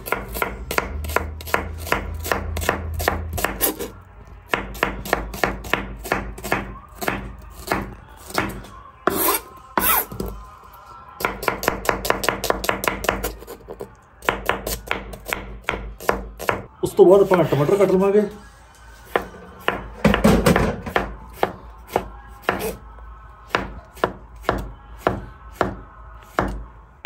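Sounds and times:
knife chopping on cutting board: 0.0s - 3.9s.

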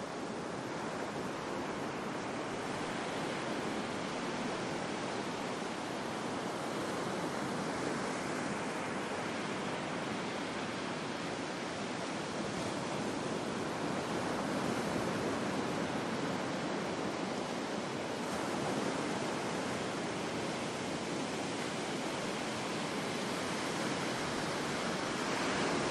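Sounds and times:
ocean waves breaking: 0.1s - 25.9s.

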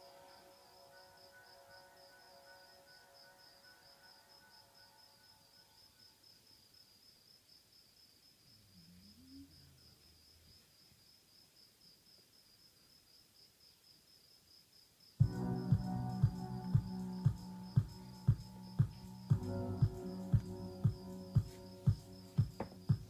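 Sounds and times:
crickets chirping: 0.0s - 23.0s
music with drum beats: 15.2s - 23.0s.

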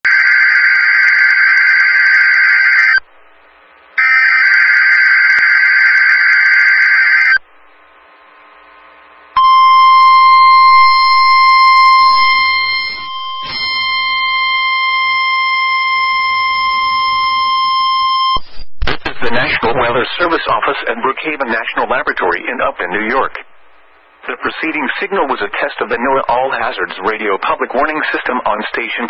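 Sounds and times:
steady alarm tone: 0.1s - 3.0s, 4.0s - 7.4s, 9.4s - 18.5s
buzzing data screech: 9.4s - 19.2s.

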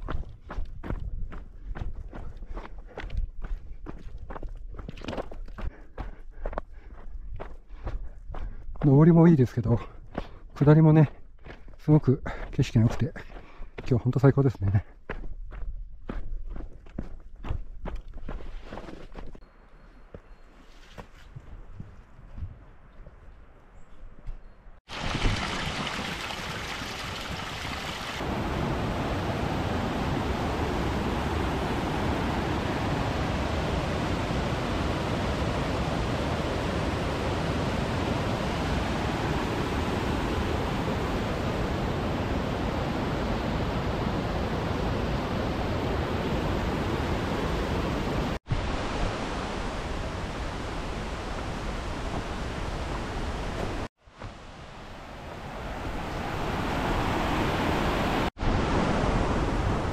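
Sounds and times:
mountain stream rushing: 24.9s - 59.9s.

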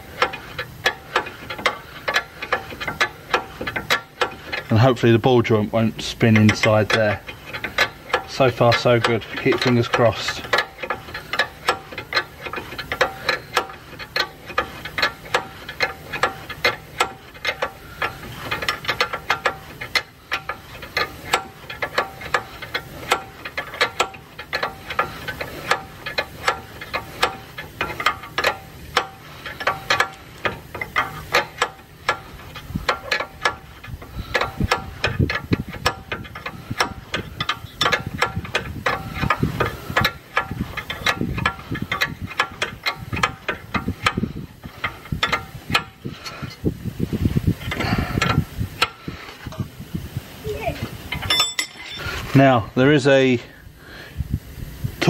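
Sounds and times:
ratchet spanner clicking: 0.0s - 49.7s.

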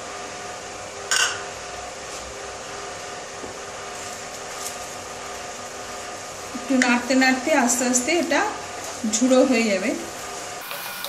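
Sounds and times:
eggs sizzling in hot oil: 10.6s - 11.0s.

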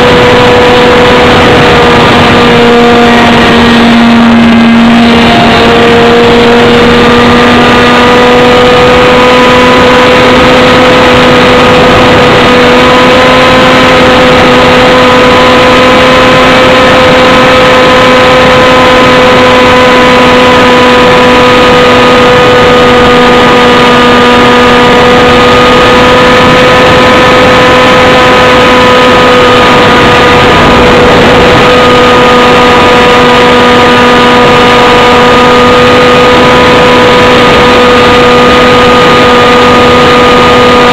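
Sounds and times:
small aircraft engine and propeller: 0.0s - 40.9s
wind rush: 0.0s - 40.9s.

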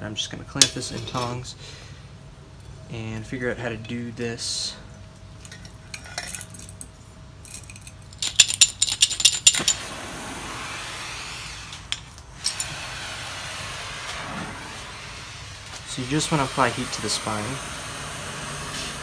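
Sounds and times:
gas torch hissing: 9.5s - 19.0s.

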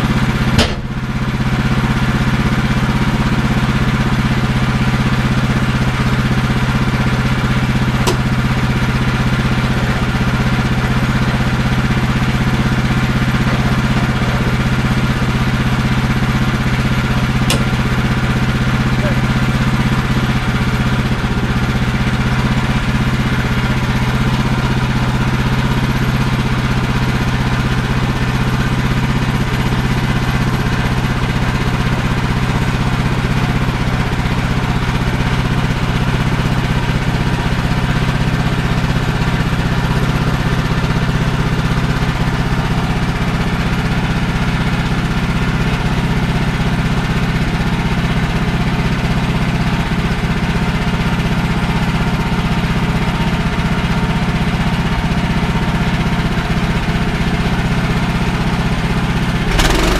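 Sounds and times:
sawmill gas engine running: 0.0s - 59.9s
bandsaw cutting log: 8.1s - 8.4s, 17.4s - 18.1s, 59.4s - 59.9s.

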